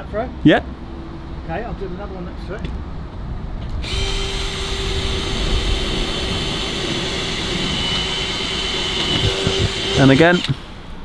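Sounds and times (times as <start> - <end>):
power drill whining: 3.8 - 10.8.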